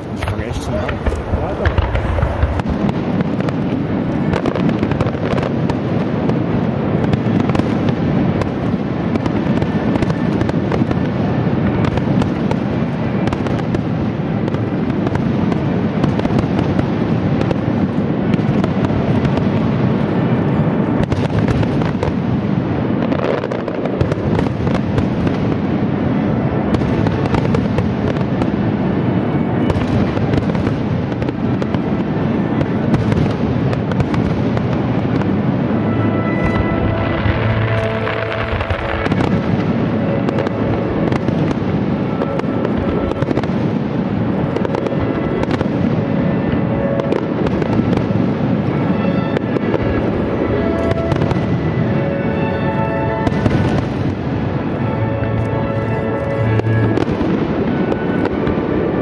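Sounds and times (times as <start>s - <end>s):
firework shells bursting: 0.0s - 5.6s.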